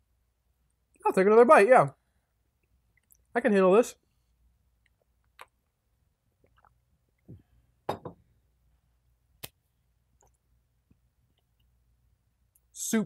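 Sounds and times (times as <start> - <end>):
mouth sounds of eating: 4.8 - 5.7.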